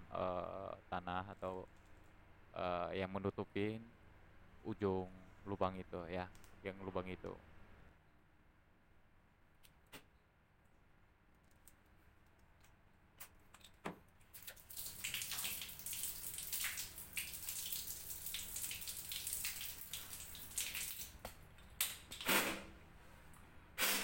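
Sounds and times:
water running and splashing: 14.3 - 21.2.

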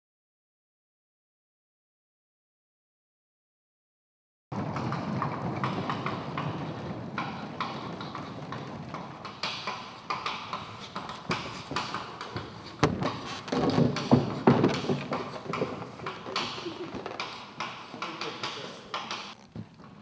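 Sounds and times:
scenery panel rolling: 4.5 - 20.0
wooden platforms set down: 4.6 - 17.7
footsteps on wooden stage: 4.6 - 20.0.

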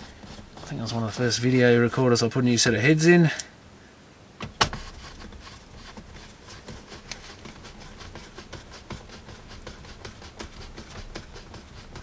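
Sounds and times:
tool clicking and tapping on parts: 6.6 - 12.0.

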